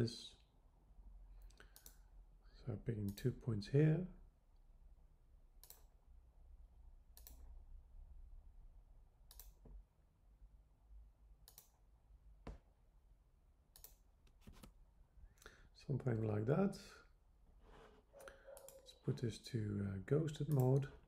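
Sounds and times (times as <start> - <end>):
faint computer mouse clicks: 1.4 - 2.0, 7.2 - 7.4, 9.3 - 9.7, 11.4 - 11.8.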